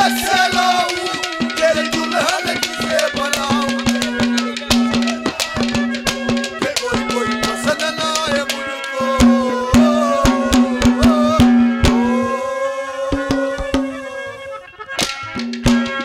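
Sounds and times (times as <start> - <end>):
fast hand drum strokes: 0.0 - 12.4, 13.1 - 14.1, 15.0 - 16.0
held drone note: 0.0 - 16.0
wavering melody: 0.0 - 16.0.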